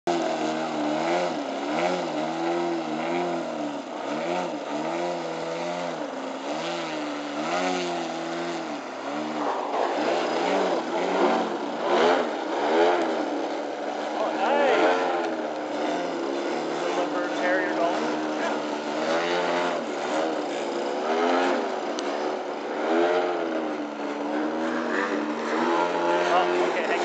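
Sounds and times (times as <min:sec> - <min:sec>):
model airplane motor and propeller: 0:00.0 - 0:27.0.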